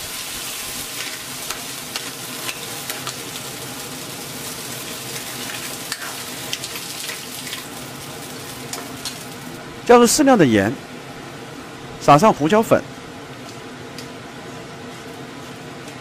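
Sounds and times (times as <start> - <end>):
mussels sizzling in a wok: 0.0 - 9.6.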